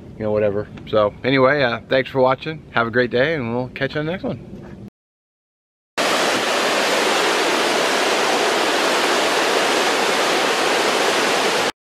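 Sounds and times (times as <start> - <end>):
waterfall rushing: 6.0 - 11.7.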